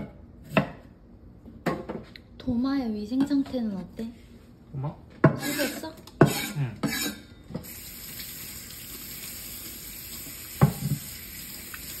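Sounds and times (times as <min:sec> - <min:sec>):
water running into metal sink: 0:07.6 - 0:12.0.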